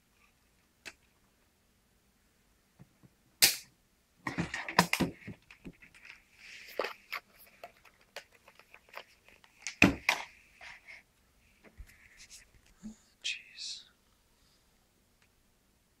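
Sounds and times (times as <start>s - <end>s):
soft rustling: 10.3s - 13.2s.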